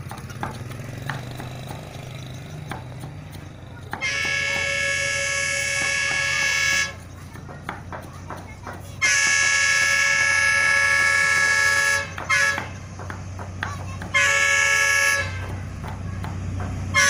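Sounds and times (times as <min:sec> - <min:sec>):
locomotive air horn blasts: 0:04.0 - 0:07.0, 0:09.0 - 0:12.8, 0:14.1 - 0:15.5.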